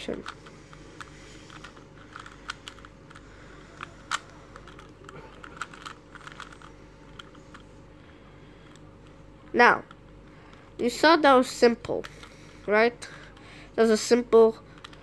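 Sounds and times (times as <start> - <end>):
puzzle cube layers clicking: 3.8 - 7.6.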